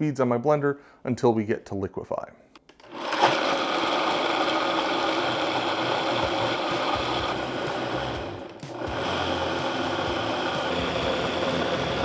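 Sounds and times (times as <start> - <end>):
blender running: 2.8 - 12.0.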